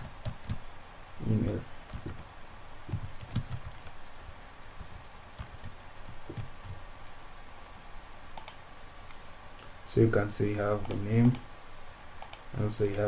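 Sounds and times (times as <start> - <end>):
computer keyboard keystrokes: 2.9 - 4.0, 8.4 - 8.6, 12.2 - 12.4.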